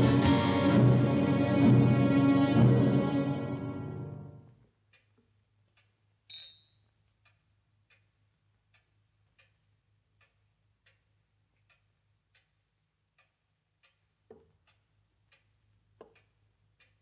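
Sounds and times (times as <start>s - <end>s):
clock ticking: 4.7s - 17.0s
bright clink: 6.3s - 6.8s.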